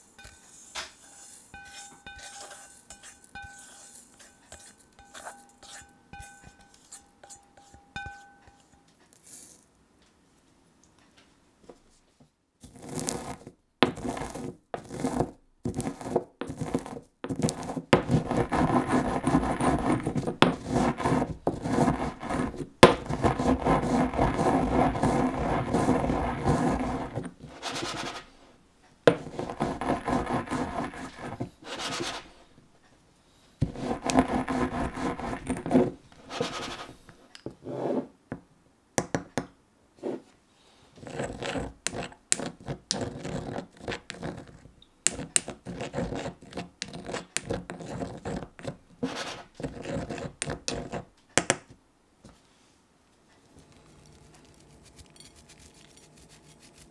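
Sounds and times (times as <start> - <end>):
gritty grinding in stone mortar: 0.1 - 9.6, 12.6 - 28.3, 29.1 - 32.4, 33.6 - 37.0, 41.0 - 51.1, 53.5 - 56.9
pestle knocking in stone mortar: 15.7 - 27.4, 29.1 - 31.5.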